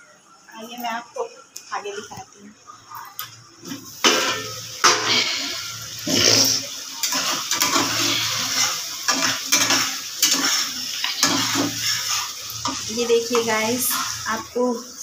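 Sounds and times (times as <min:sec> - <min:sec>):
metal spoon scraping in pot: 0:06.4 - 0:14.3.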